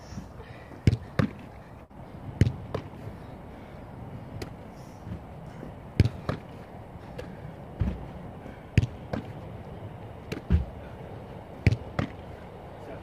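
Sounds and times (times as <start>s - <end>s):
football handling slaps: 0.8s - 1.5s, 2.4s - 3.0s, 4.4s - 5.2s, 5.9s - 6.6s, 8.7s - 9.4s, 10.2s - 10.8s, 11.6s - 12.2s
thuds of jumping on box: 7.8s - 8.1s, 10.4s - 10.8s.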